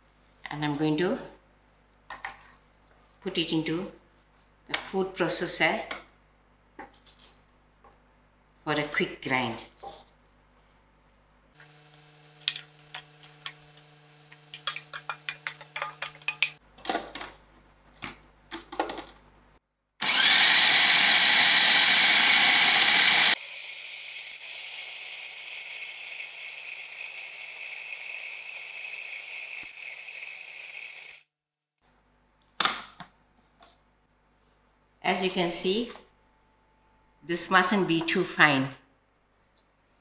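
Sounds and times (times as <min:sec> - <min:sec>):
food processor motor grinding: 0:11.6 - 0:16.3, 0:20.0 - 0:31.2.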